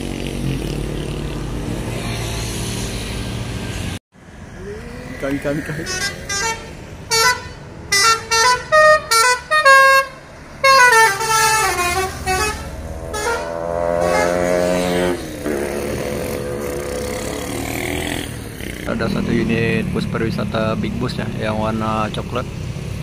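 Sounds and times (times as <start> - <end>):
bus engine passing: 0.0 - 23.0
musical bus horn tune: 5.8 - 15.8.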